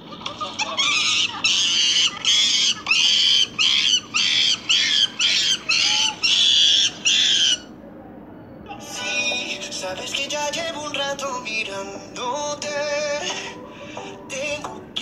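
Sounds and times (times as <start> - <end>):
chimpanzee screaming: 0.6 - 7.7.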